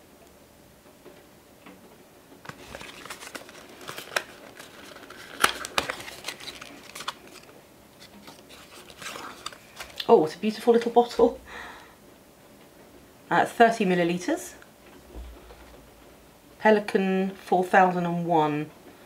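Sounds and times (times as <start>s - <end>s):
cardboard rustling and scraping: 2.4s - 10.0s.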